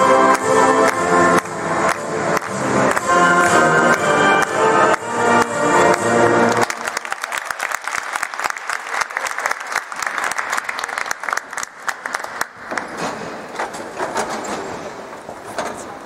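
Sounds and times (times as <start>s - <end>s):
audience applauding: 0.3s - 13.1s.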